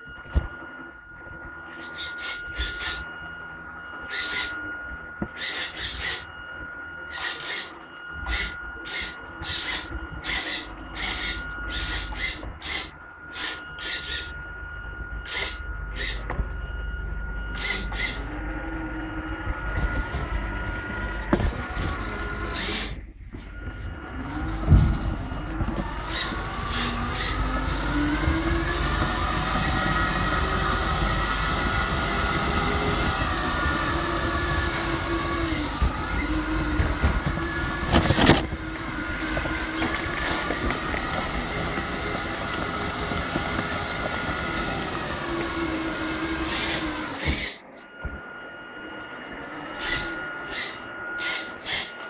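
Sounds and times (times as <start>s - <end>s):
electric motor whine and rumble: 0.0s - 52.0s
wheels rolling rumble: 23.5s - 47.4s.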